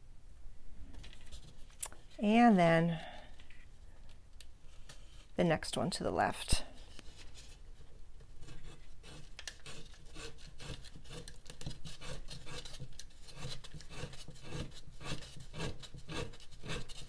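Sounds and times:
leather lace scraping hard gourd: 0:08.4 - 0:17.0.

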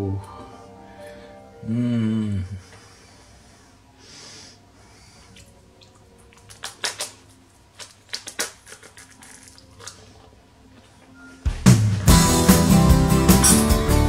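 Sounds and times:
crispbread crunching: 0:06.3 - 0:11.1.

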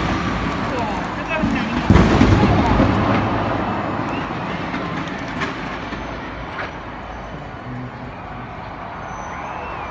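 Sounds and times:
fireworks background din: 0:00.0 - 0:07.9.

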